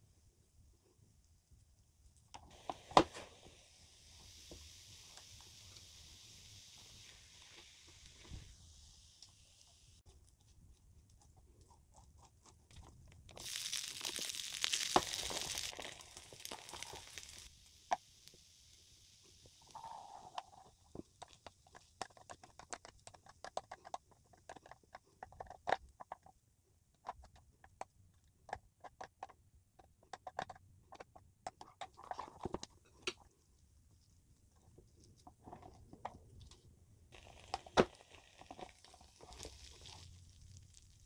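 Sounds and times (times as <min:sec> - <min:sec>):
chewing crispy food: 0:10.2 - 0:17.5, 0:37.2 - 0:41.0.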